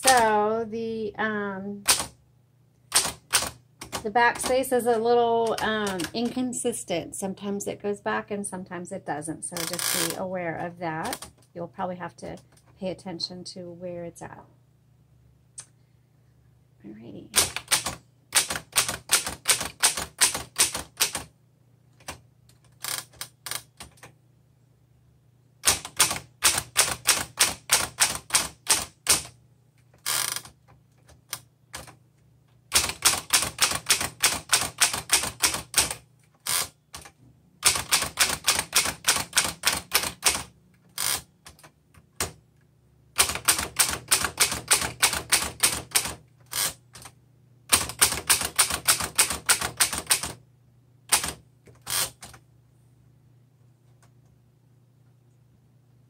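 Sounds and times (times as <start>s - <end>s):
typewriter typing: 0.0s - 0.3s, 1.8s - 2.2s, 2.9s - 6.4s, 17.4s - 21.3s, 25.6s - 29.4s, 30.0s - 32.0s, 32.7s - 42.4s, 43.2s - 50.4s, 51.1s - 52.4s.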